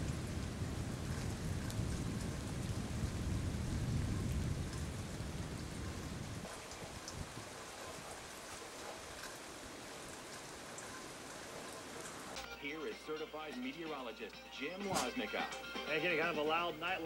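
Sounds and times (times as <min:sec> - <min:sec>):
low rumble of thunder: 0:00.0 - 0:12.0
rain drops ticking: 0:00.0 - 0:17.0.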